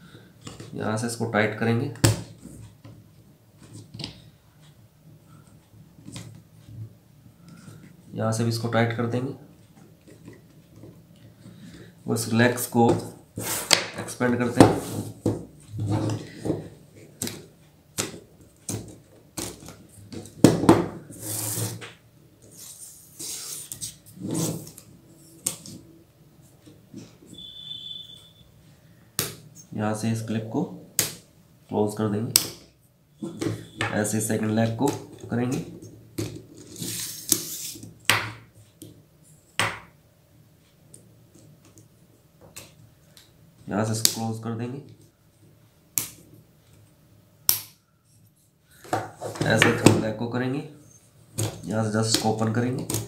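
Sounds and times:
tube sections sliding: 21.1s - 21.9s, 22.5s - 24.8s, 36.6s - 37.8s
high squeak: 27.3s - 28.5s.

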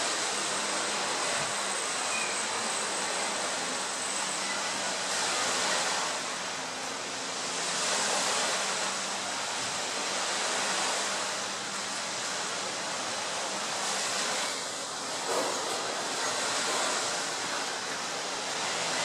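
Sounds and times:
wind and sea rush: 0.0s - 19.0s.

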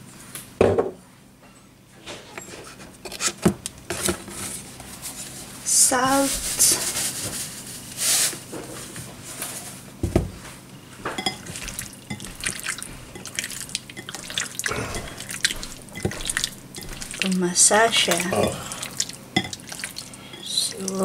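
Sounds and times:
hand squelching chicken in sauce: 18.1s - 21.0s.

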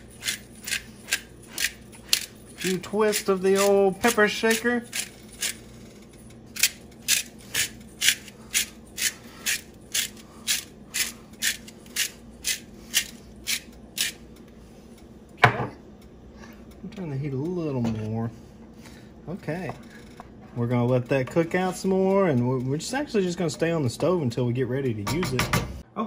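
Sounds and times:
pepper grinder grinding: 0.0s - 15.0s.

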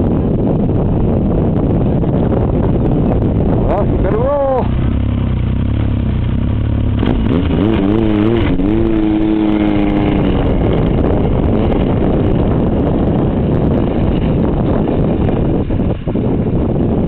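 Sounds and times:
snowmobile engine revving: 6.2s - 15.2s.

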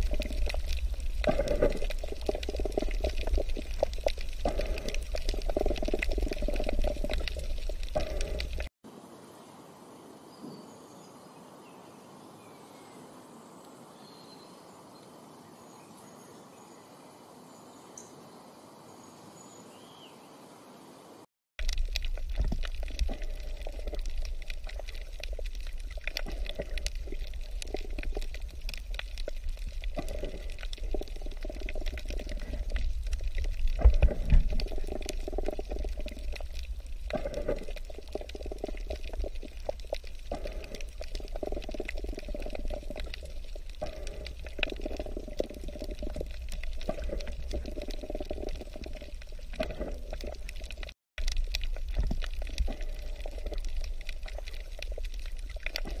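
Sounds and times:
water washing: 0.0s - 8.7s.

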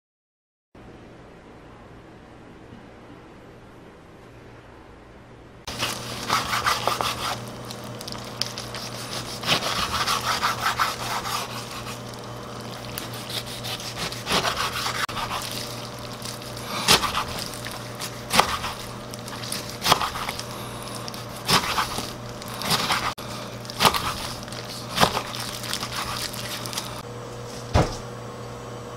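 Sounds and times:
faint steady hum: 0.8s - 28.9s
knife chopping on wooden board: 5.7s - 7.5s, 8.5s - 23.2s, 23.8s - 26.3s.

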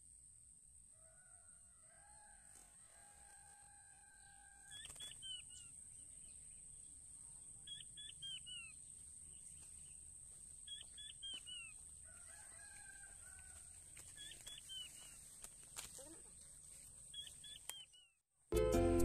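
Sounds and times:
quail calling: 14.1s - 15.2s.

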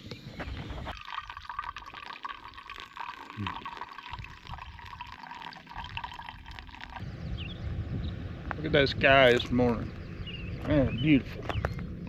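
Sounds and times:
hot water pouring onto coffee grounds: 0.9s - 7.0s.

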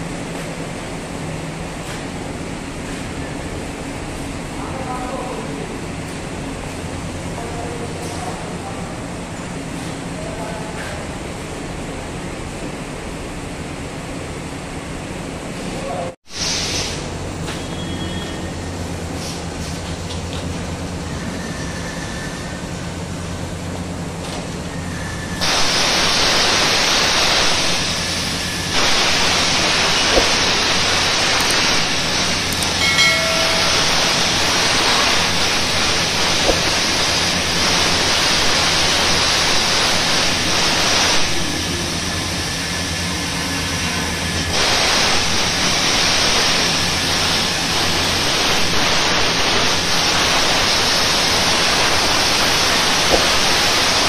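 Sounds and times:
plasma cutter hissing: 16.3s - 18.4s, 25.0s - 54.0s.

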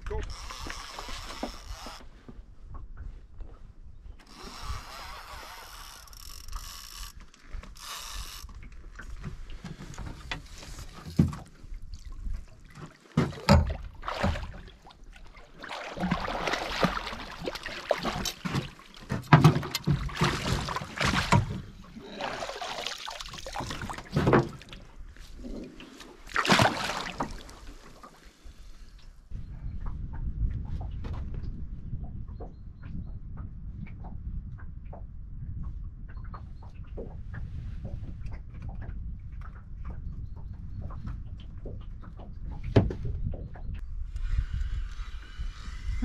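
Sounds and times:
knocks and scraping on boat hull: 9.0s - 11.7s, 12.7s - 14.8s, 17.5s - 21.9s, 23.6s - 25.6s, 40.8s - 43.8s.

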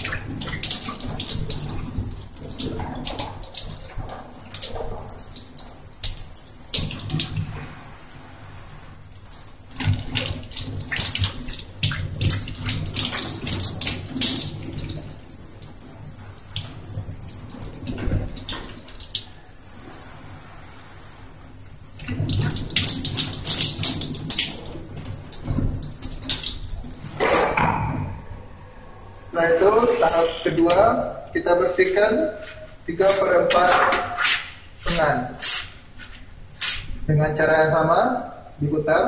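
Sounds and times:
tap water splashing over hands: 0.0s - 7.8s, 9.2s - 19.3s, 22.0s - 28.0s.

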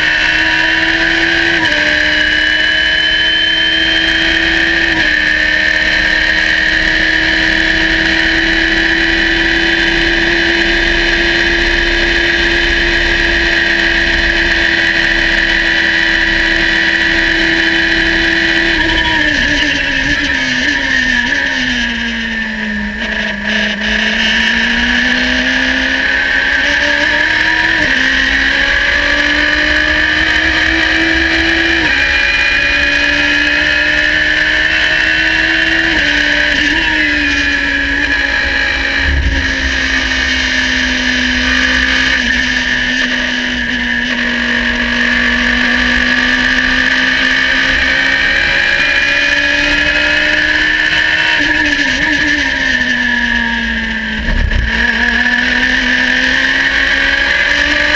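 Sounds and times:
race car engine at full throttle: 0.0s - 57.9s
steady high whine: 2.1s - 23.5s, 27.3s - 50.8s.

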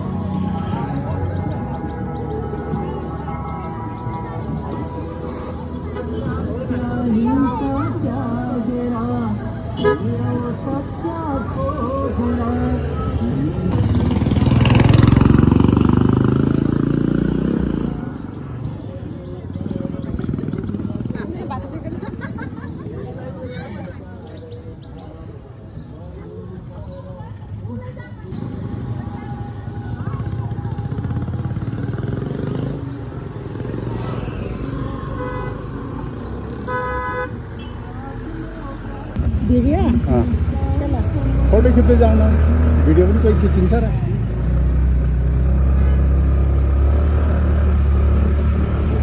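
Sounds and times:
motorcycle engine passing by: 4.0s - 18.6s, 19.5s - 24.0s, 28.3s - 36.7s, 39.2s - 49.0s
vehicle horn toot: 9.8s - 10.2s, 36.7s - 37.8s.

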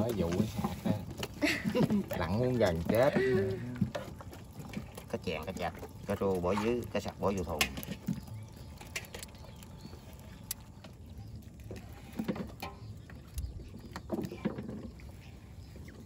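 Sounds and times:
fish flapping and splashing: 0.0s - 16.0s.

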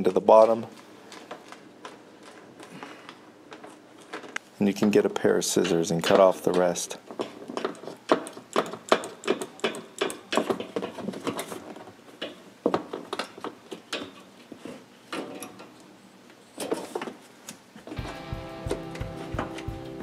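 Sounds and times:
sharp clicks and knocks: 5.6s - 14.3s.

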